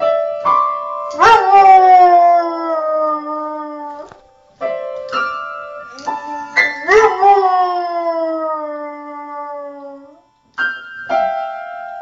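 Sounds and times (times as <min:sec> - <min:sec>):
piano chords struck by paws: 0:00.0 - 0:08.4, 0:09.0 - 0:12.0
dog howling: 0:01.2 - 0:04.2, 0:05.9 - 0:10.2.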